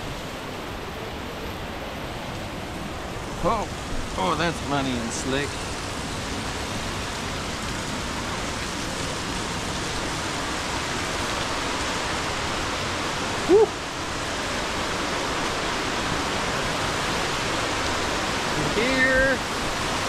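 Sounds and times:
waterfall rushing: 0:00.0 - 0:20.0
person shouting woo: 0:13.4 - 0:13.8.

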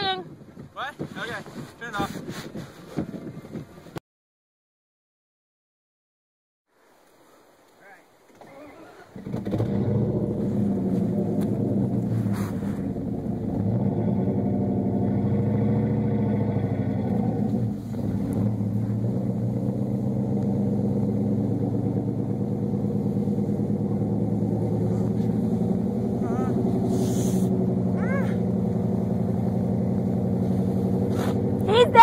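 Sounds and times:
pickup truck engine running: 0:09.2 - 0:32.0.

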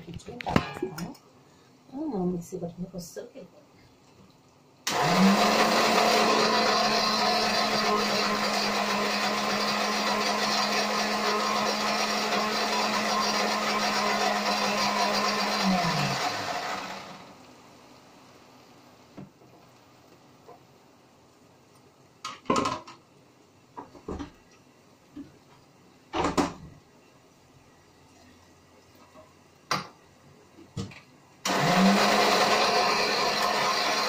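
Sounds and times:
mixer grinder running: 0:04.9 - 0:17.4, 0:31.5 - 0:34.0.

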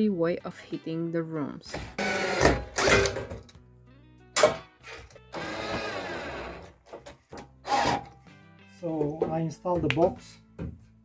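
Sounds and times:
cordless drill driving screws: 0:01.9 - 0:03.2, 0:04.8 - 0:06.8, 0:07.6 - 0:08.2.

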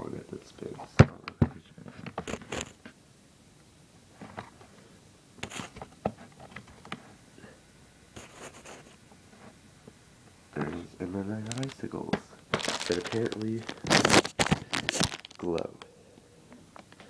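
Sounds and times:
handling clicks and rustles: 0:10.6 - 0:15.9.

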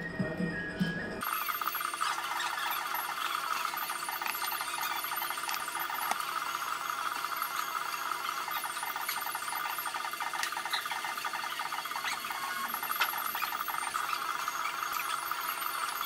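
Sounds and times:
background music: 0:00.0 - 0:01.2.

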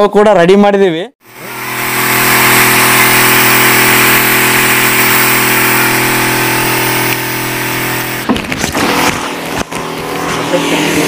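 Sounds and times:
spray pump humming: 0:01.2 - 0:11.0
mist hissing from spray nozzle: 0:01.3 - 0:08.2.

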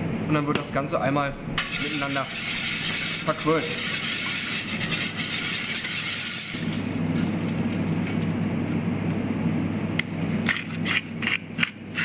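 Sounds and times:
low machine hum: 0:00.0 - 0:12.0
whisk beating against a metal pan: 0:01.6 - 0:06.8.

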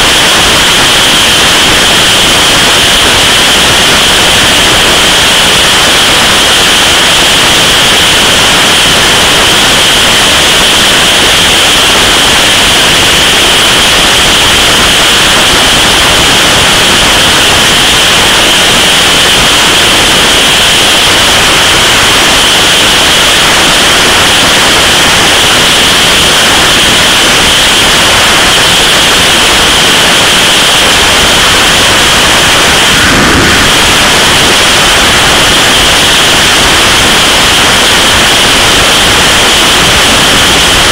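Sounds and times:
wind rush over microphone: 0:00.0 - 0:40.9.

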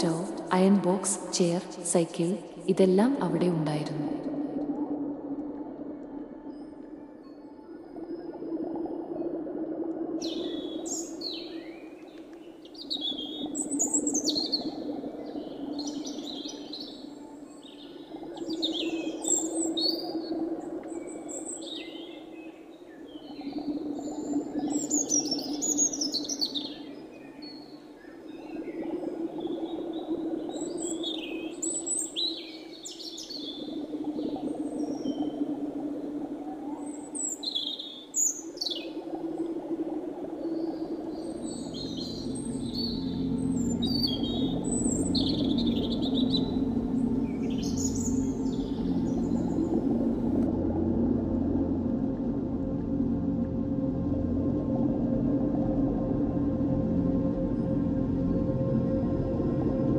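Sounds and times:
low steady hum: 0:39.0 - 0:59.9
songbirds chirping and singing: 0:41.2 - 0:50.2.

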